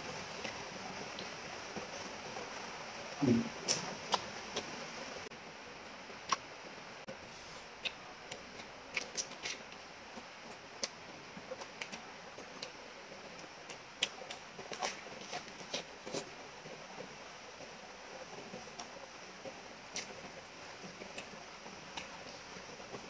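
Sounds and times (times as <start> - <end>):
wet chewing and mouth sounds: 3.2 - 4.8, 6.2 - 6.5, 7.6 - 17.7, 18.3 - 23.0.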